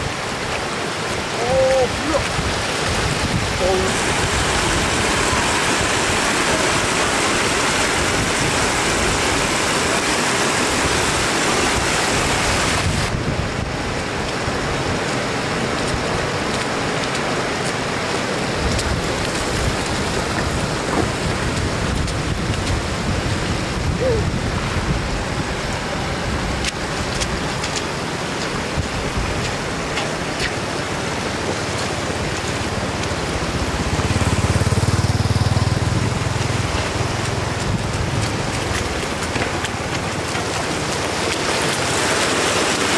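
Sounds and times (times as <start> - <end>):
floodwater rushing: 0.0 - 42.9
low engine hum: 28.9 - 42.0.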